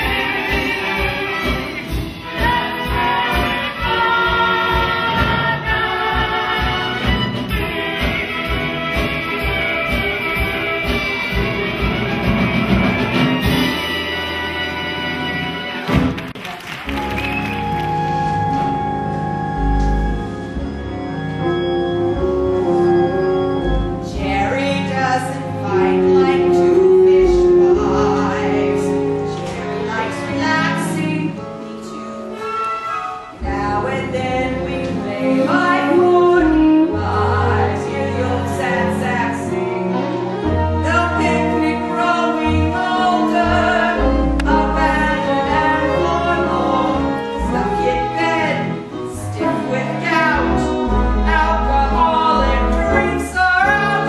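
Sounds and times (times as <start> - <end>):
woman singing: 0.0 - 8.2, 24.0 - 31.4, 33.4 - 54.0
instrumental accompaniment: 0.0 - 54.0.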